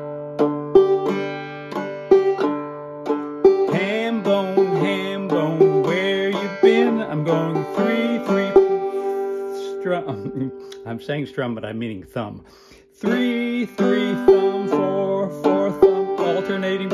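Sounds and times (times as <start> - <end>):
banjo playing clawhammer style: 0.0 - 12.0, 12.9 - 16.9
person vocalizing without words: 8.9 - 10.9.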